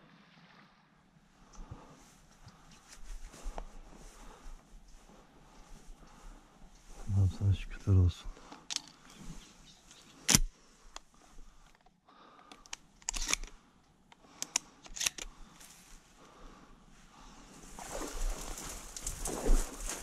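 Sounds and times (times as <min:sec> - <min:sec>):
dry reeds rustling and crackling: 0:17.5 - 0:20.0
reed cracking: 0:17.5 - 0:20.0.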